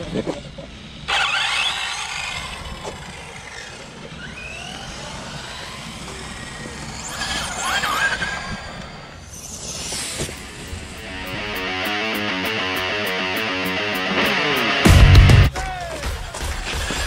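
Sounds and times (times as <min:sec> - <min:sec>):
electric motors whining: 0:00.0 - 0:15.5
hiss of tyres and wind: 0:00.7 - 0:11.2.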